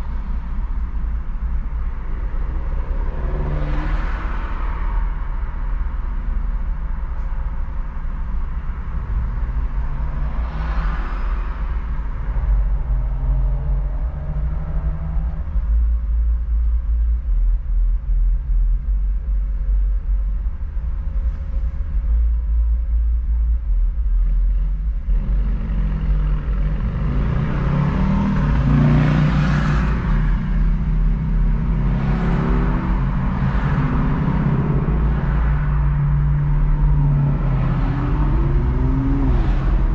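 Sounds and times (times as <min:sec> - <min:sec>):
road rumble: 0:00.0 - 0:39.9
traffic noise: 0:00.0 - 0:39.9
car engine revving up: 0:25.0 - 0:39.9.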